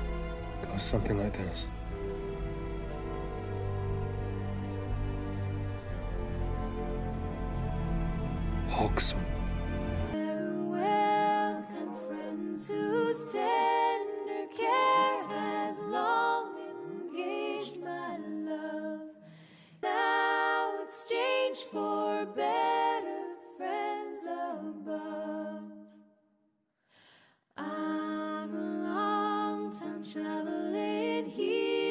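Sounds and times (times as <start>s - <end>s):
a cappella singing: 10.2s - 26.1s, 27.6s - 31.9s.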